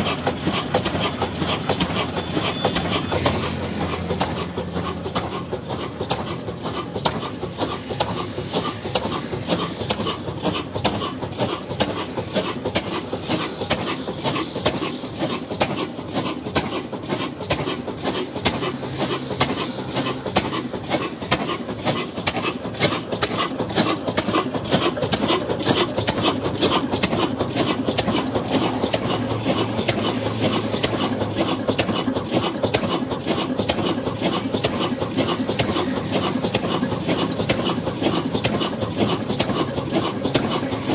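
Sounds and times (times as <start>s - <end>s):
diesel engine clattering: 0.0s - 40.9s.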